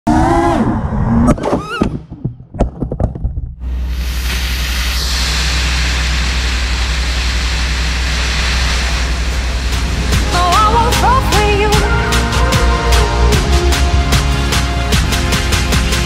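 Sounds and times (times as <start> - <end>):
loud rushing noise with low hum: 3.6 - 16.0.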